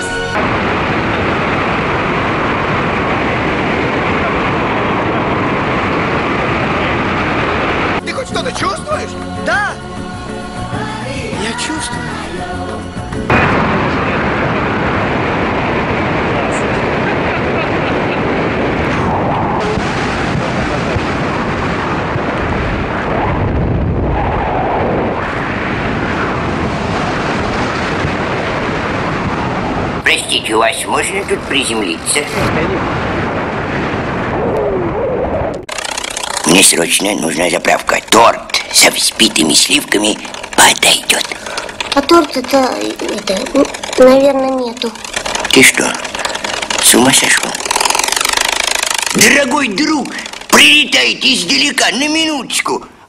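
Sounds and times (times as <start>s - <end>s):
wind rushing on microphone: 0.0s - 9.0s, 13.3s - 35.7s.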